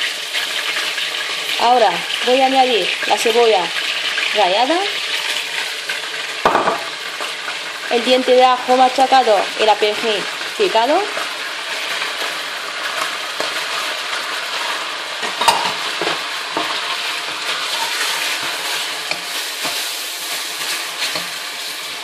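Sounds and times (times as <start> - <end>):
chicken sizzling in oil: 0.0 - 22.0
wooden spoon stirring: 15.8 - 22.0.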